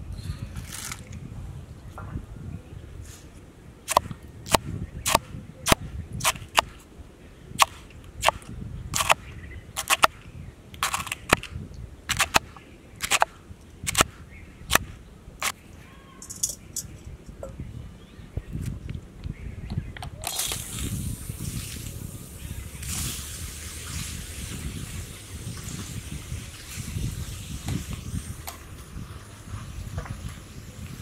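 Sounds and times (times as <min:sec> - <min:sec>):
sharp clicks: 0:03.9 - 0:06.8, 0:07.6 - 0:09.2, 0:09.8 - 0:11.5, 0:12.1 - 0:14.1.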